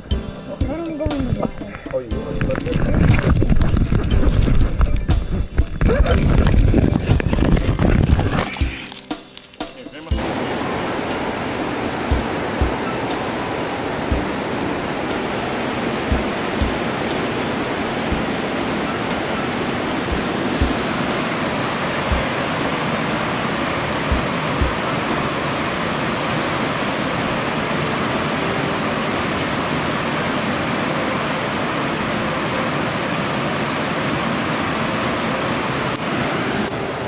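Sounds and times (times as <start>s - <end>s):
low bumps: 0.0s - 8.6s
rushing river water: 0.0s - 37.0s.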